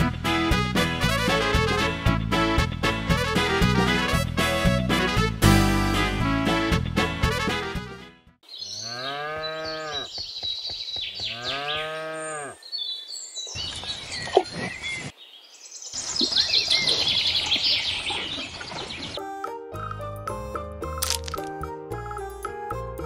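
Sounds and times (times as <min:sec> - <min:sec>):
birds chirping: 0:08.4 - 0:19.2
cow mooing: 0:08.8 - 0:10.1, 0:11.3 - 0:12.6.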